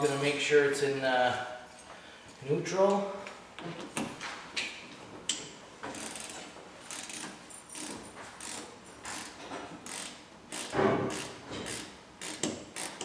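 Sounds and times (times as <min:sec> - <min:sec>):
ratchet wrench clicking: 0:05.9 - 0:13.0.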